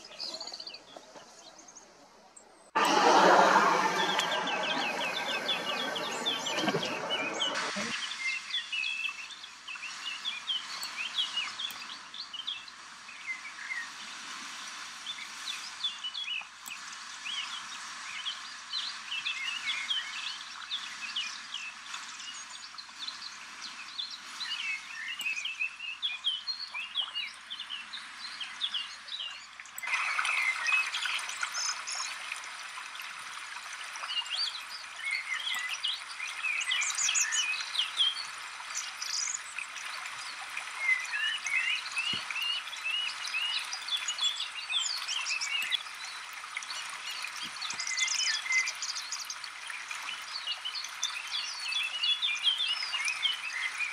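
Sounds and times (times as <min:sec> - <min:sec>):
songbirds chirping and warbling: 0:00.0 - 0:14.1, 0:15.0 - 0:53.9.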